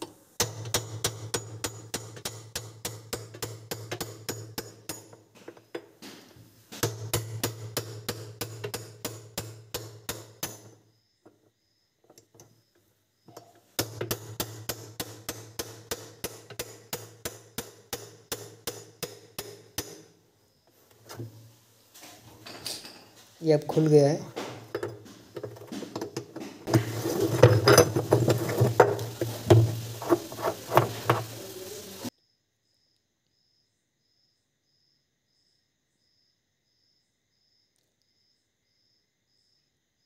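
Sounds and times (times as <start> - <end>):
hammer blows on a spanner: 0.0 - 10.8, 24.4 - 32.1.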